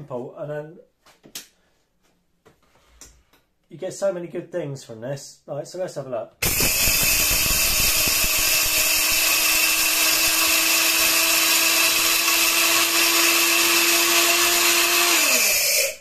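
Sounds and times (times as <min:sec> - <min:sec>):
electric grain mill grinding: 0:06.4 - 0:16.0.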